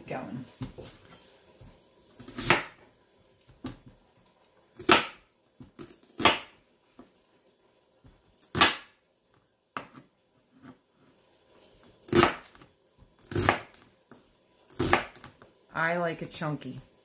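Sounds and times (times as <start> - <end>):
knife cutting onion on board: 1.6 - 2.9, 4.7 - 7.1, 8.3 - 9.0, 9.7 - 11.2, 11.9 - 13.8, 14.7 - 15.4.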